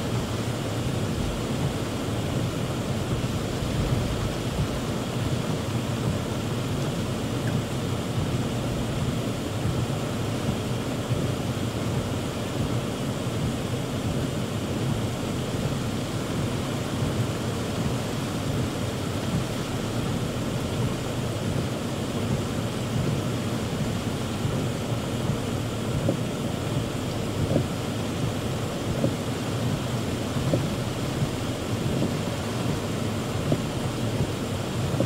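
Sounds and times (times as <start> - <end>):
heavy rain on car roof: 0.0 - 35.0.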